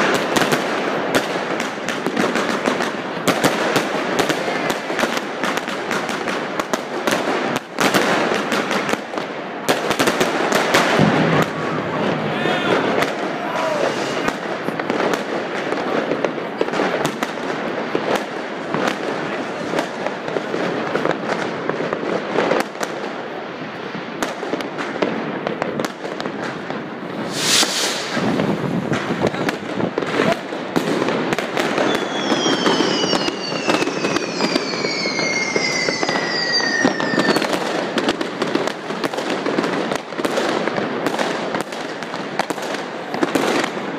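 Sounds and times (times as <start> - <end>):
fireworks crackling: 0.0 - 43.9
loud firework bang: 10.0 - 15.1, 27.1 - 38.4
falling firework whistle: 10.9 - 14.4, 27.2 - 29.4, 31.5 - 38.2.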